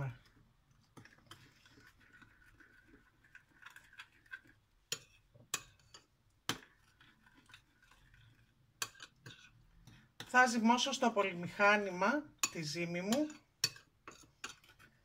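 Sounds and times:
spoon stirring in glass bowl: 0.0 - 15.0.

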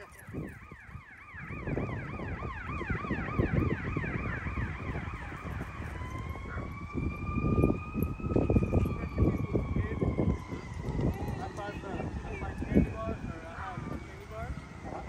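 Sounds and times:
emergency vehicle siren: 0.0 - 15.0.

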